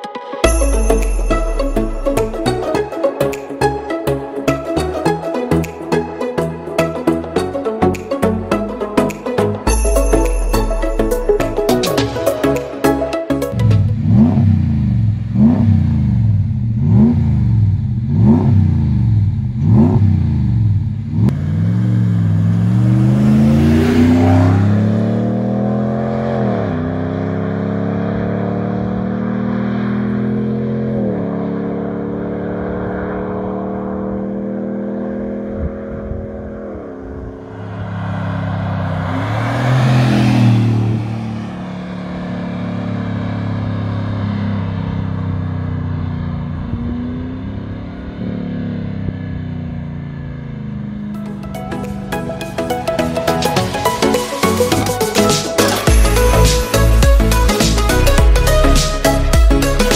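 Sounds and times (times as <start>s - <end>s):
truck engine revving and accelerating: 13.3s - 59.9s.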